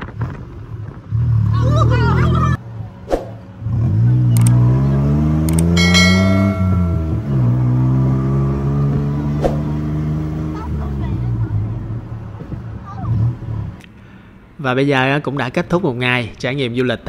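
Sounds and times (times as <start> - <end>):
tuk-tuk engine accelerating: 0.0 - 13.8
sharp clicks: 4.4 - 4.6, 5.5 - 5.8
bright bell-like ding: 5.7 - 7.8.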